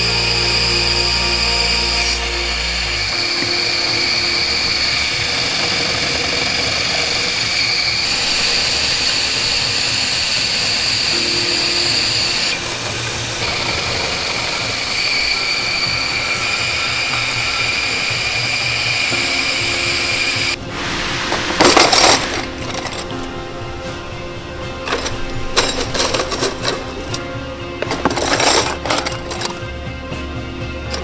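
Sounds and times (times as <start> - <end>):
milling machine motor hum: 0.0 - 20.6
high machine whine: 0.0 - 29.6.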